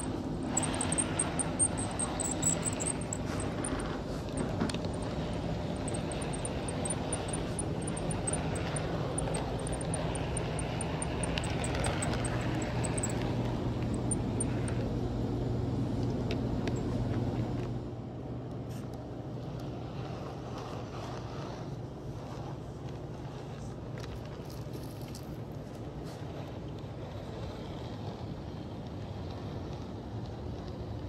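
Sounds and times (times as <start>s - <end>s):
rapid high ticking: 0.0s - 14.7s
model train electric hum: 0.0s - 31.0s.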